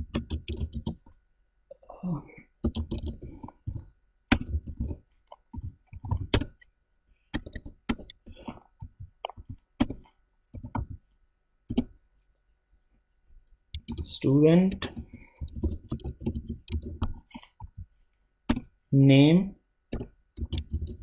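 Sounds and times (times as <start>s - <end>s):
typing on computer keyboard: 0.0s - 1.0s, 2.6s - 5.0s, 5.6s - 6.6s, 7.4s - 8.2s, 9.3s - 11.0s, 13.8s - 14.1s, 14.7s - 17.2s, 19.9s - 21.0s.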